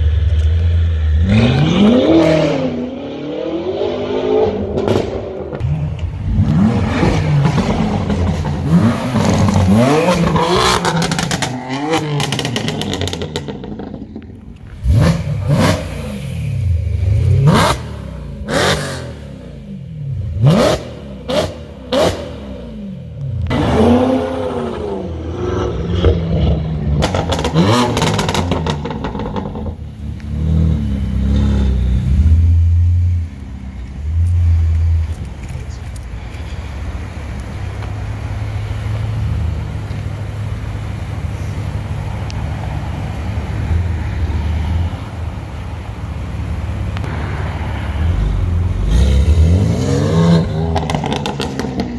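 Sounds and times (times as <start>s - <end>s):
car engines revving: 0.0s - 51.9s.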